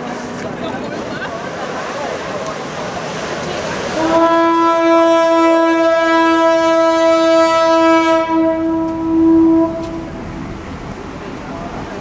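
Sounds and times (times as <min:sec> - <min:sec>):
ship horn long blast: 0:03.9 - 0:10.3.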